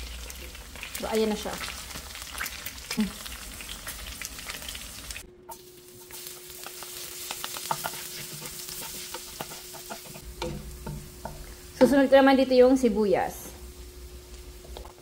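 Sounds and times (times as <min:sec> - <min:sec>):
meat sizzling and popping in oil: 0:00.0 - 0:12.4, 0:13.3 - 0:15.0
garlic sizzling in oil: 0:00.0 - 0:15.0
wooden spatula stirring: 0:05.5 - 0:12.0
faint steady hum: 0:09.8 - 0:15.0.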